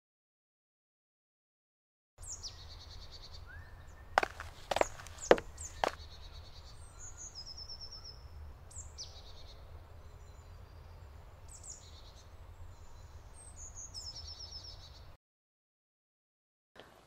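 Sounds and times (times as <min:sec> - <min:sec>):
songbirds trilling: 0:02.2 - 0:15.1.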